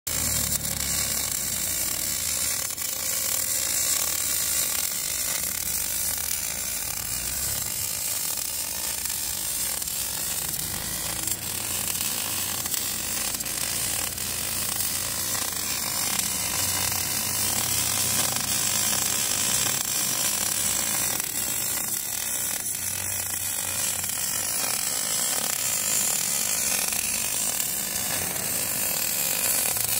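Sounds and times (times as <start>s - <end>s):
welding arc hissing: 0.1s - 29.9s.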